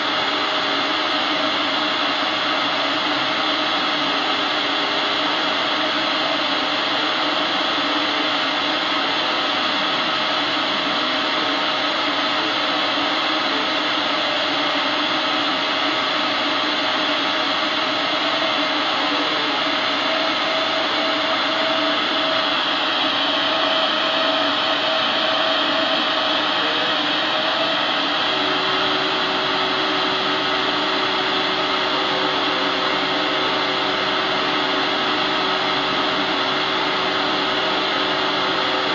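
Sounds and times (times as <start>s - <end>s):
laser cutter air hiss: 16.3s - 38.9s
faint whining tones: 17.1s - 38.9s.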